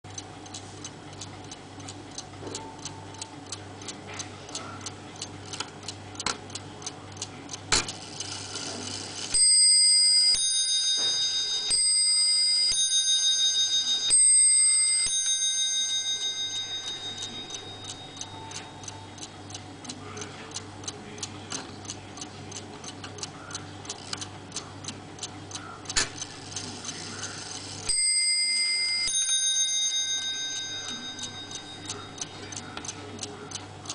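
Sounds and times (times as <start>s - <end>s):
clock mechanism click: 0.1s - 33.9s
clock ticking: 0.1s - 33.9s
clock bells striking: 8.5s - 19.1s, 27.6s - 32.6s.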